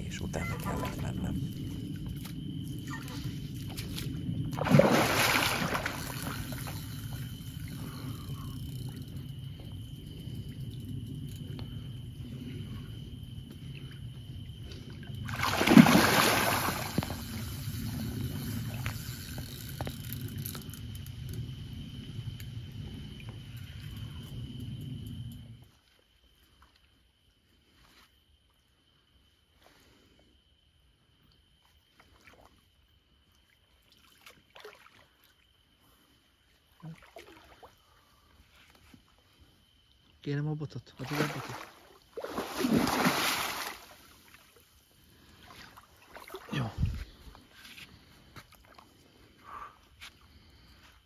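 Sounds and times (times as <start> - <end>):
water sloshing around wader: 0.0 - 19.0, 31.5 - 40.1, 40.9 - 50.8
water splashing around landing net: 2.8 - 7.3, 15.2 - 19.4, 33.4 - 35.4, 36.7 - 38.2, 41.0 - 44.7, 45.3 - 46.8
loud water splash: 4.6 - 6.8, 15.3 - 17.2, 41.0 - 44.0.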